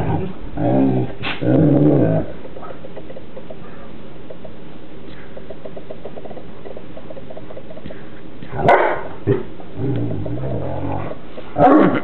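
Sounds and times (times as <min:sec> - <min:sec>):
dog growling: 0:00.0 - 0:02.3, 0:09.3 - 0:12.0
dog barking: 0:08.6 - 0:09.2.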